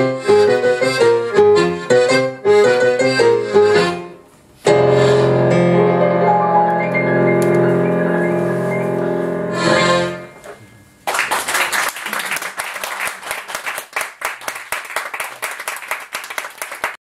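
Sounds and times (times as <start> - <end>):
accordion and piano chord: 0.0 - 10.6
audience clapping: 11.0 - 17.0.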